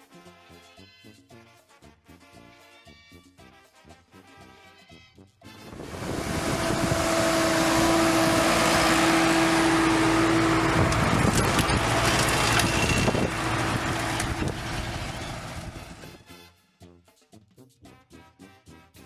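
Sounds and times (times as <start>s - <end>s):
tractor engine rumbling under load: 5.6s - 16.2s
steady mechanical tone: 5.7s - 16.2s.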